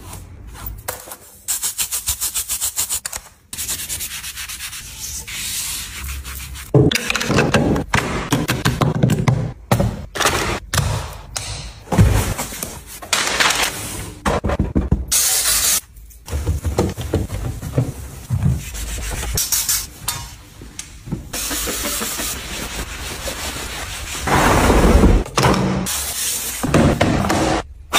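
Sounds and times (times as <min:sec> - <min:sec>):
sponge scrubbing vinyl chair: 0:21.3 - 0:24.8.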